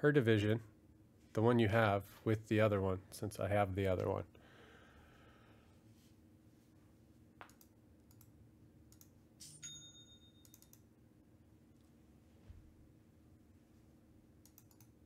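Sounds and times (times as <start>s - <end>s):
keyboard and mouse clicks: 7.4s - 8.3s, 8.9s - 9.2s, 10.4s - 10.9s, 14.4s - 15.0s.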